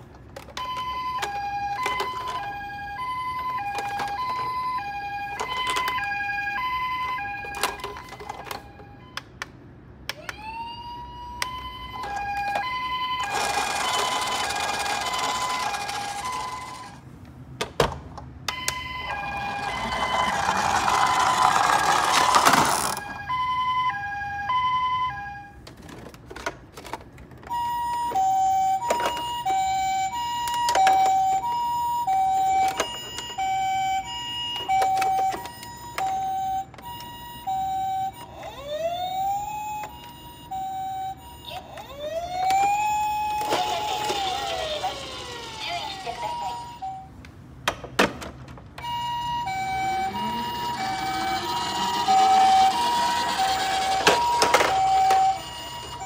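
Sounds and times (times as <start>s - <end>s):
toy siren two-tone pattern: 0.6s - 9.3s, 10.1s - 17.0s, 18.5s - 25.6s, 27.4s - 47.2s, 48.8s - 56.0s
toy wheels rolling: 11.9s - 17.0s, 19.0s - 23.1s, 41.5s - 46.9s, 48.8s - 56.0s.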